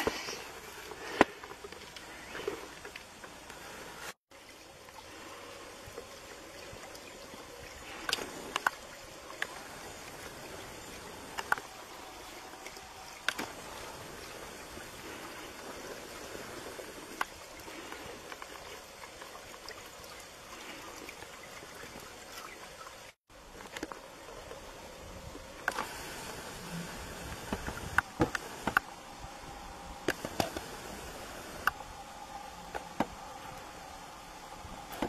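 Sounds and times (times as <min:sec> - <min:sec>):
lake ice cracking and pinging: 0:00.0 - 0:24.6
faint steady hiss: 0:00.0 - 0:35.0.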